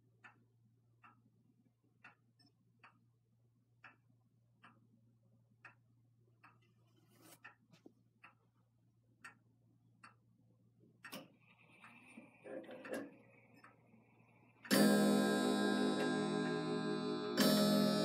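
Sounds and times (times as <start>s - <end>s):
clock movement whirring and knocking: 10.9s - 18.0s
grandfather clock ticking: 14.6s - 18.0s
deep clock bell striking: 14.7s - 18.0s.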